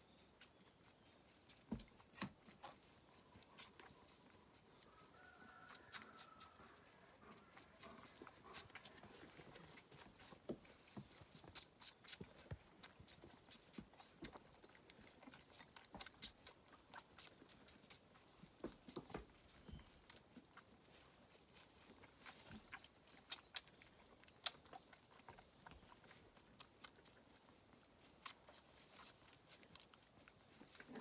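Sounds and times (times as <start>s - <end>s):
lamb suckling from bottle: 7.3s - 20.8s, 21.4s - 31.0s.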